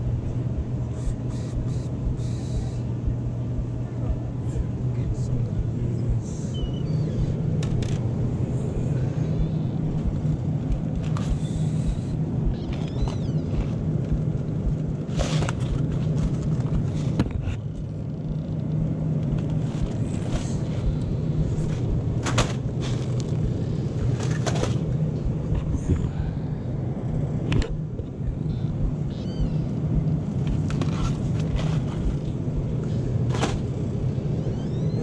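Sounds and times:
freezer humming: 0.0s - 35.0s
boxes rustling and knocking: 19.4s - 23.4s, 24.0s - 25.0s, 30.5s - 32.4s, 33.2s - 33.8s.

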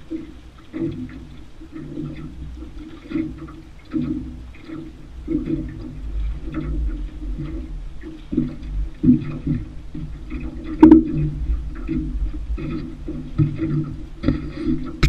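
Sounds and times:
small waves lapping against boat: 0.0s - 15.0s
steady low rumble: 5.0s - 14.2s.

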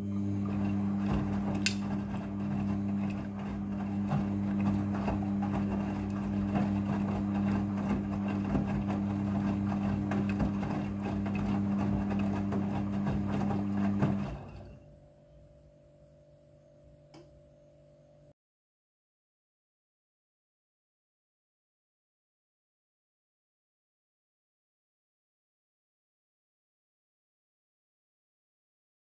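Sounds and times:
washing machine motor hum: 0.0s - 17.5s
small click: 1.6s - 1.8s, 17.1s - 17.4s.

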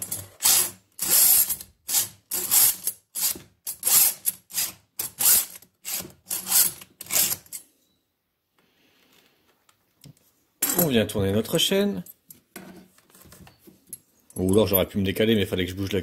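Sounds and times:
file rasping on chain: 0.1s - 7.5s.

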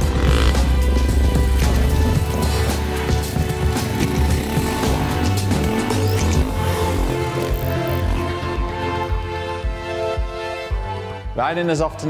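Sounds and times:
synth chords over low beat: 0.0s - 7.2s.

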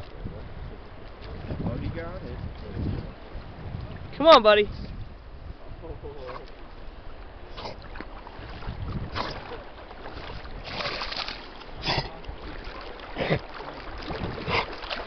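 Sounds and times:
wind rumbling on microphone: 0.0s - 15.0s
river water flowing: 6.0s - 15.0s
dog splashing in water: 7.7s - 15.0s.

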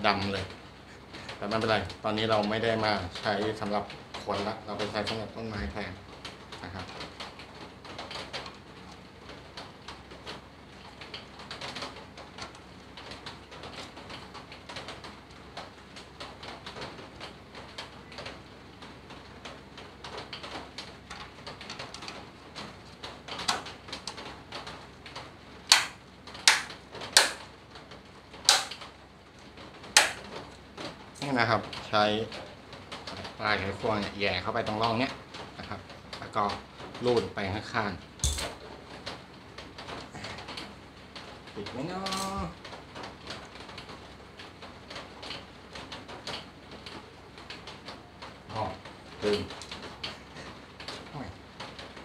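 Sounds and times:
sharp plastic clicks: 19.4s - 27.5s, 28.3s - 29.0s, 29.8s - 31.0s.

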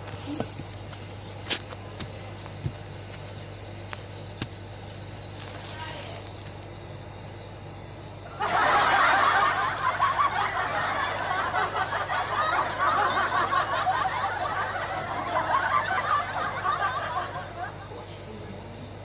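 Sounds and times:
people laughing: 8.3s - 18.7s.

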